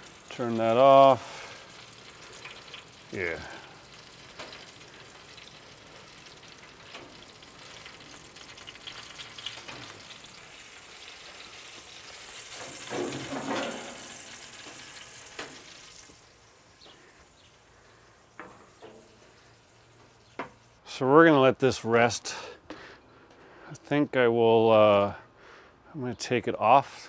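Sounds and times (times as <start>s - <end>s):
meat sizzling and crackling: 0.0s - 20.8s.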